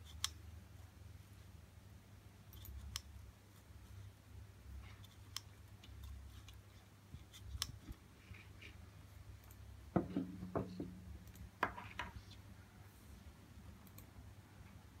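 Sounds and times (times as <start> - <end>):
low steady hum: 0.0 - 15.0
gauge knocking on tabletop: 9.9 - 11.0.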